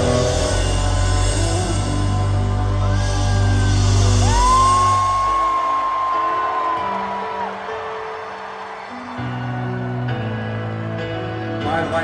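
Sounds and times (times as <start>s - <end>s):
live rock band music: 0.0s - 7.3s.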